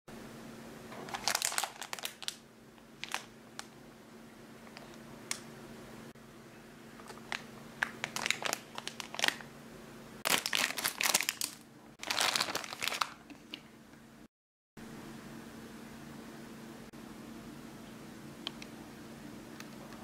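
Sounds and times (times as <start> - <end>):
faint steady hum: 0.1 - 20.0
plastic packaging crinkling: 1.0 - 3.7, 7.0 - 9.5, 10.3 - 13.6.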